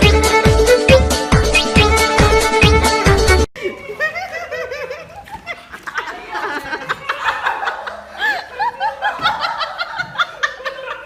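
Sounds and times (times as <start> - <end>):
people laughing: 3.6 - 11.0.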